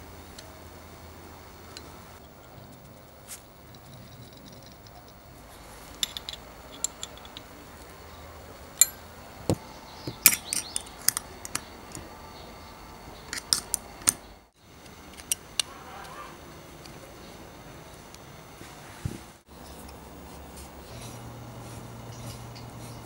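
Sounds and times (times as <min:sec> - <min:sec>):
metallic clicks of spanner and fittings: 0:01.8 - 0:05.2, 0:05.9 - 0:08.0, 0:10.1 - 0:12.0, 0:14.8 - 0:15.7.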